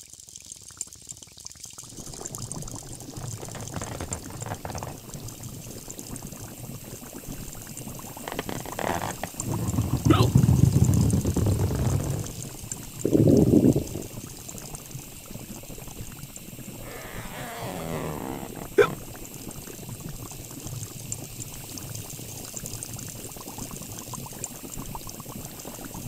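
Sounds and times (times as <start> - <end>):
soda fizzing and crackling: 0.0 - 26.0
wavering pitched groan: 8.3 - 12.4, 16.8 - 19.0.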